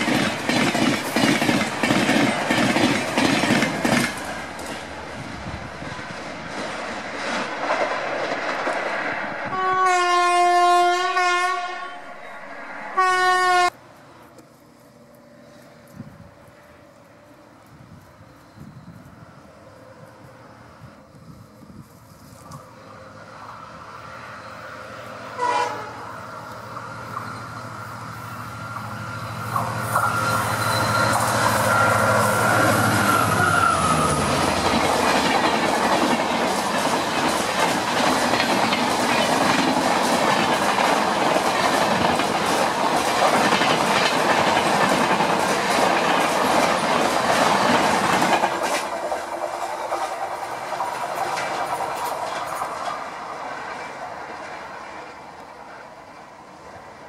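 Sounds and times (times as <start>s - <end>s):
diesel locomotive engine drone: 0.0s - 57.0s
train coaches rushing and clattering: 0.0s - 57.0s
train horn: 9.4s - 13.8s, 25.3s - 26.2s.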